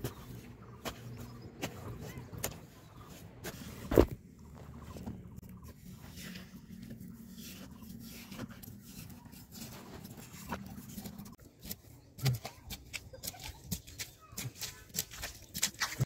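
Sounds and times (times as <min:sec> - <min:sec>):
stick squelching in wet mud: 0:05.6 - 0:16.0.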